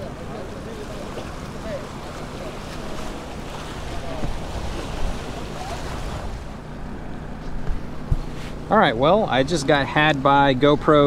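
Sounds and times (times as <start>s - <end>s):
surf washing against rocks: 0.0s - 6.6s
steady low hum: 0.0s - 11.0s.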